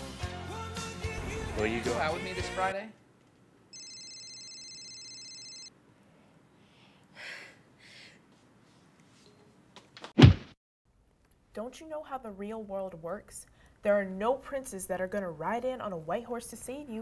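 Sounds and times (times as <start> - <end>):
high ringing tone: 3.8 - 5.7
soft breathy sighs: 6.2 - 8.3
loud thump: 10.2 - 10.6.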